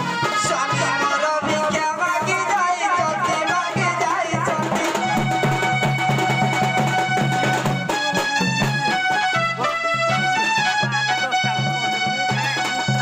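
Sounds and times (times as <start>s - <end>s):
folk melody: 0.0s - 13.0s
hand drum beat: 0.0s - 13.0s.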